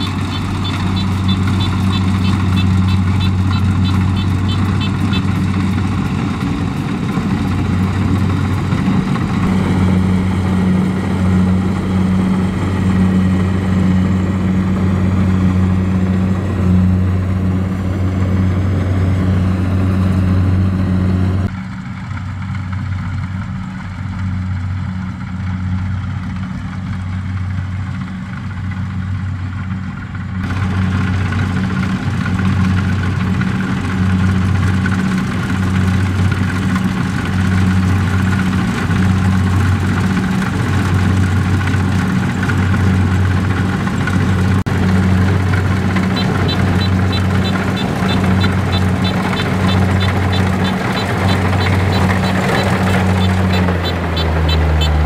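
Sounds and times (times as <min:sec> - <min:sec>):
diesel engine droning: 0:00.0 - 0:55.0.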